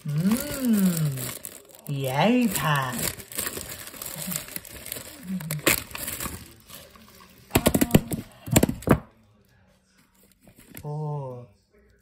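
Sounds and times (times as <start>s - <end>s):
plastic wrappers crinkling: 0.0s - 9.0s.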